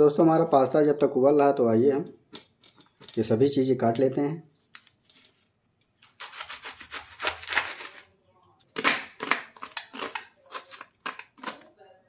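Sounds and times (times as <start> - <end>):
knife cutting cabbage on board: 6.0 - 8.0.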